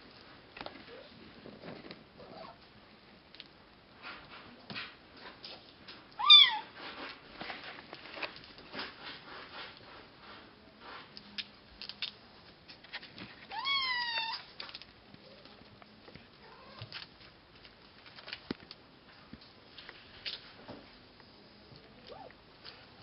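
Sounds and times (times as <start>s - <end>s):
kitten meowing: 6.2s - 6.7s, 13.5s - 14.4s.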